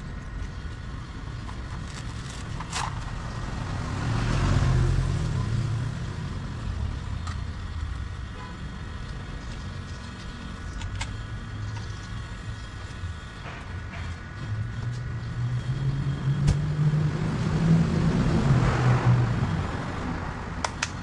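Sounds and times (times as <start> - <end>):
background traffic: 0.0 - 21.0
vehicle passing rumble: 2.2 - 8.3, 11.3 - 21.0.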